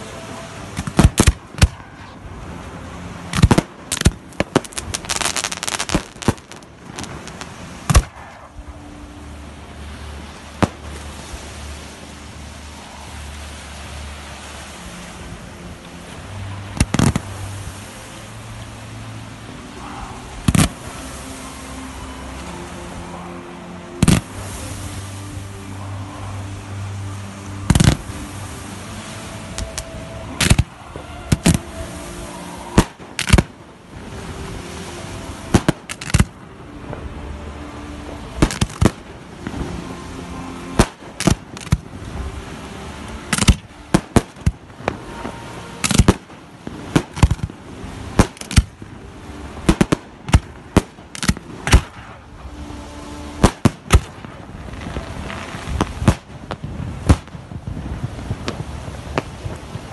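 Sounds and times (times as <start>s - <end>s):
fireworks crackle: 0.7s - 2.2s, 3.3s - 8.6s, 16.4s - 17.6s, 20.4s - 21.5s, 29.4s - 37.1s, 38.3s - 59.9s
fireworks bangs: 32.5s - 33.6s, 35.5s - 36.3s, 49.6s - 52.2s, 53.4s - 59.9s.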